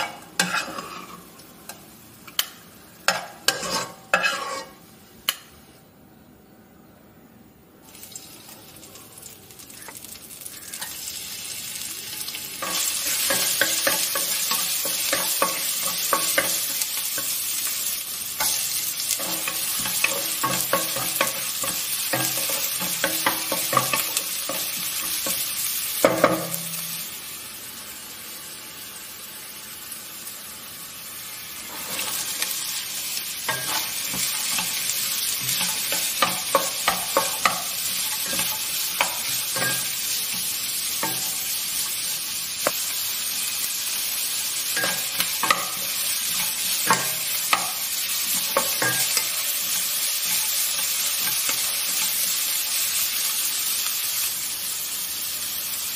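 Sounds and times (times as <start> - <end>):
vegetables sizzling in hot oil: 0.0 - 5.8, 7.8 - 55.9
wooden spatula scraping a pot: 0.4 - 1.2, 3.5 - 4.8.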